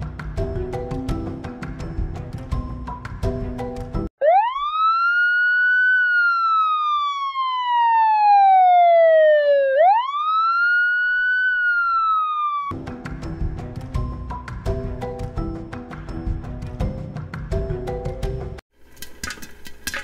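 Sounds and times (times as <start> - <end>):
emergency vehicle siren wailing: 4.2 - 12.8.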